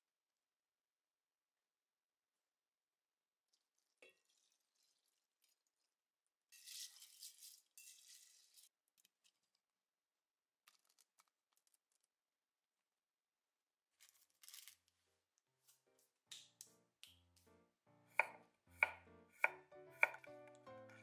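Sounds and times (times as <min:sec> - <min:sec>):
rice and water rattling in a pot: 0:03.5 - 0:09.0.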